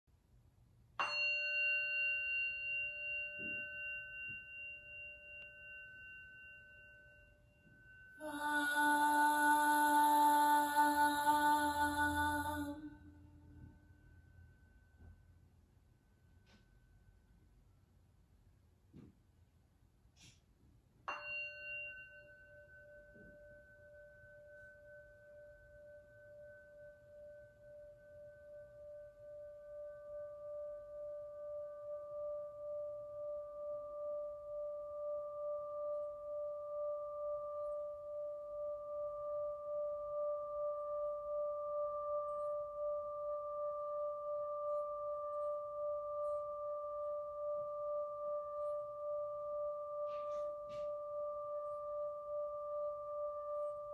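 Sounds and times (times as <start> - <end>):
singing bowl struck: 1.0 - 14.2, 21.1 - 28.6
singing bowl ringing tone: 1.0 - 17.4, 21.1 - 53.9.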